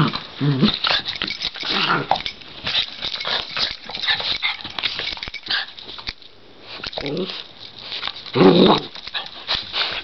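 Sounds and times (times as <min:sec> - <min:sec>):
dog growling: 0:00.0 - 0:01.0, 0:08.3 - 0:09.0
dogs scuffling and snapping: 0:00.0 - 0:10.0.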